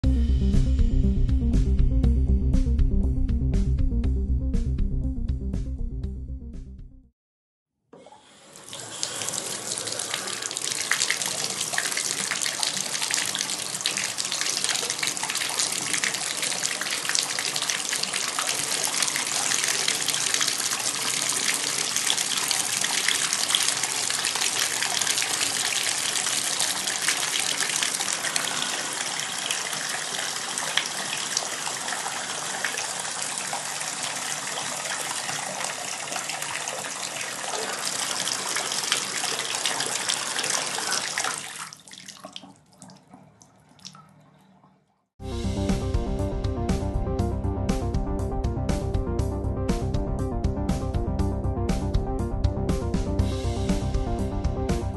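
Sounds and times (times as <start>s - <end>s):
bathtub spout water pouring: 8.0s - 44.9s.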